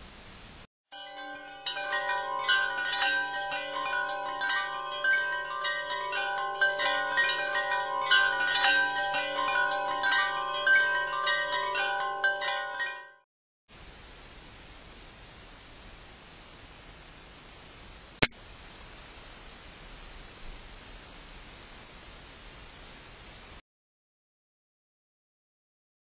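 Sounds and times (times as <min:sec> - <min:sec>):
wind chimes ringing: 0:00.9 - 0:13.2.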